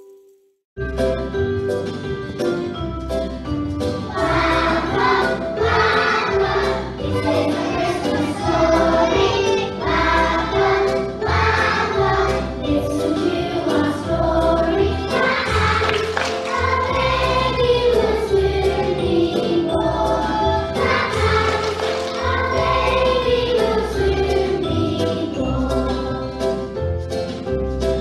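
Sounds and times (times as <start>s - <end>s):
children singing: 4.1s - 26.5s.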